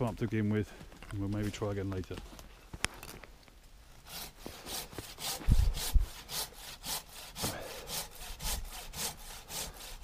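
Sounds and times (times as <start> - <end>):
hand saw cutting wood: 4.0 - 10.0.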